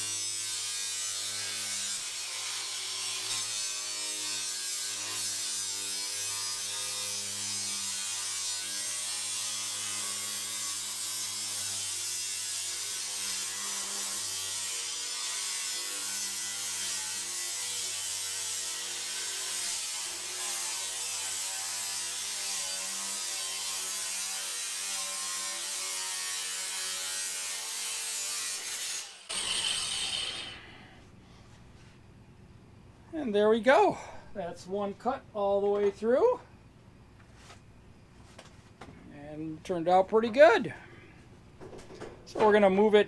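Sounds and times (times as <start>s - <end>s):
angle grinder cutting metal: 0.0s - 30.9s
grinder wheel whining down: 29.3s - 30.8s.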